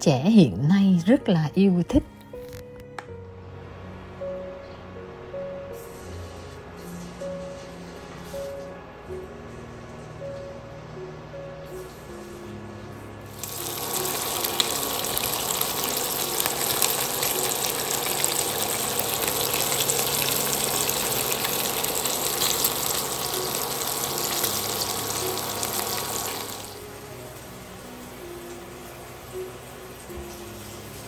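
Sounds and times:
bacon sizzling in a frying pan: 0:13.3 - 0:31.0.

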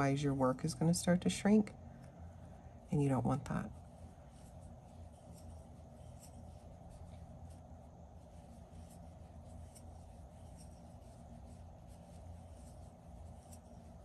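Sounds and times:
steady low hum: 0:00.0 - 0:14.0
crochet hook scratching yarn: 0:02.9 - 0:14.0.

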